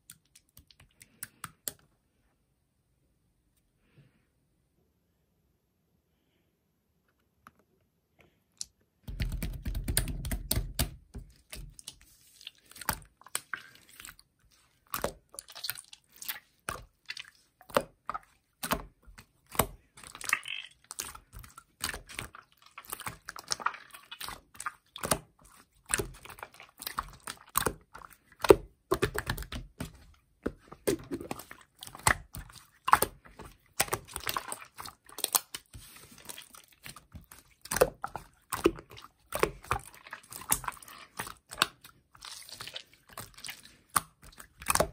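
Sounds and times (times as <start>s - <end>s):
low slime squelch: 10.0s - 44.9s
slime squeezed by hand: 20.0s - 25.2s.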